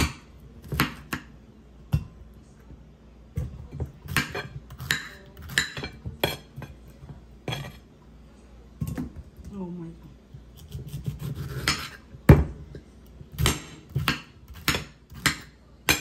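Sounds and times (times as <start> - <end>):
knife cutting pineapple: 10.5 - 12.1.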